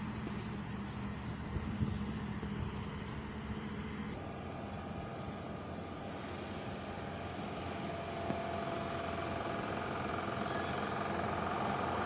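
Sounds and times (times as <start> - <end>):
faint steady whine: 0.0 - 12.0
mechanical drone of engines: 0.0 - 12.0.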